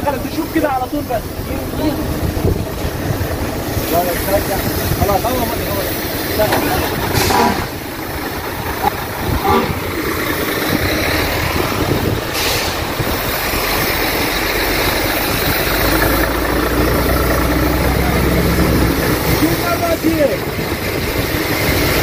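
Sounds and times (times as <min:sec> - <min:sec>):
diesel truck engines idling: 0:00.0 - 0:22.0
short hiss: 0:12.3 - 0:13.0.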